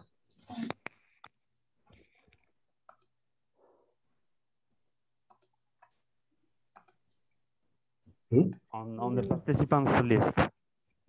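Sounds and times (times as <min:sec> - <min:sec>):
computer mouse clicks: 0:00.6 - 0:03.2, 0:05.2 - 0:06.0, 0:06.7 - 0:07.1.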